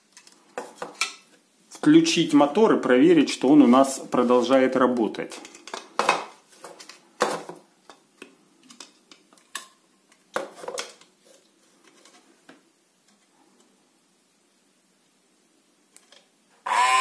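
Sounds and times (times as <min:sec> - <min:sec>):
plastic parts clicking: 0:06.7 - 0:11.1.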